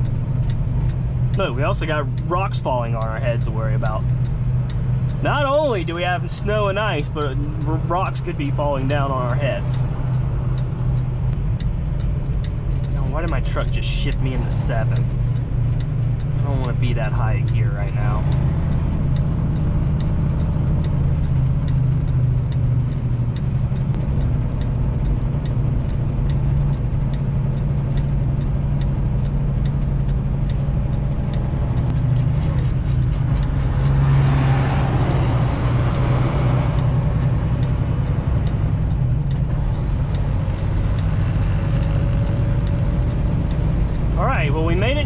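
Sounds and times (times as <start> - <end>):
diesel truck engine droning: 0.0 - 45.0.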